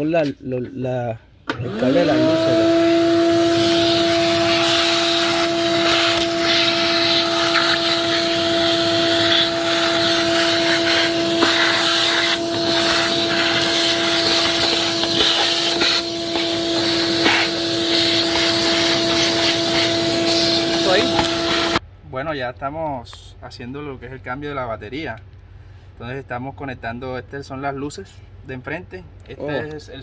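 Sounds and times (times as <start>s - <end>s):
vacuum cleaner running: 1.5s - 21.8s.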